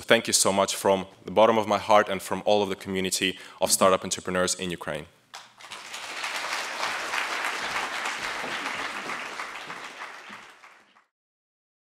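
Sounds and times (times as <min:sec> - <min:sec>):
audience applauding: 0:05.4 - 0:11.1.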